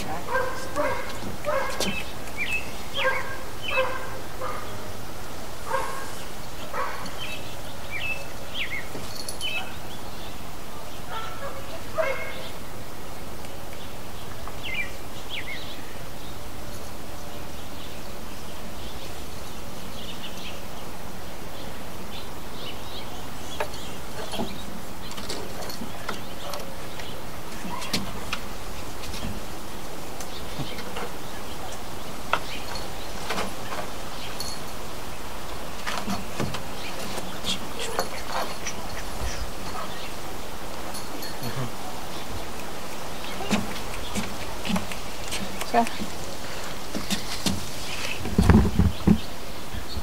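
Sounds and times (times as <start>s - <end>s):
birds chirping: 0.0s - 50.0s
dog barking: 0.2s - 2.0s, 3.0s - 4.8s, 5.7s - 7.1s, 9.5s - 9.8s, 11.1s - 12.5s, 39.7s - 40.0s.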